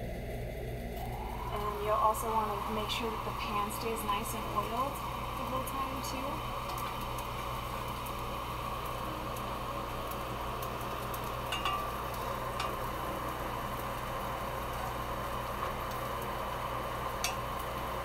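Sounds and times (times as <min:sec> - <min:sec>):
mushrooms sizzling in a skillet: 0:01.0 - 0:18.0
metal tongs clicking on pan: 0:11.5 - 0:12.8, 0:17.2 - 0:17.4.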